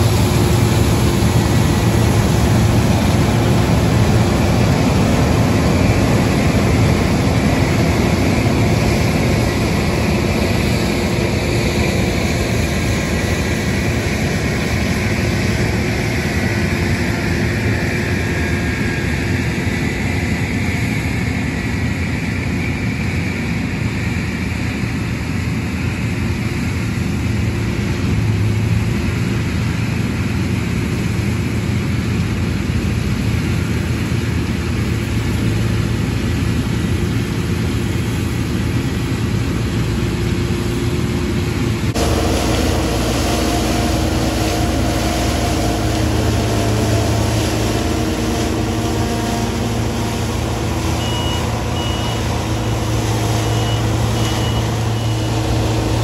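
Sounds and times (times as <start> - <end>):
combine harvester engine drone: 0.0 - 56.0
whining drive tones: 42.0 - 56.0
short high beeps: 50.9 - 55.5.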